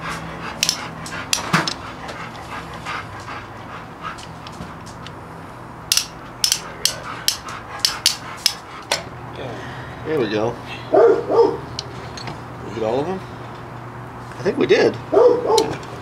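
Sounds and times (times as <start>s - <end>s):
steady low hum: 0.0s - 16.0s
pliers clicking on metal clip: 5.9s - 8.6s.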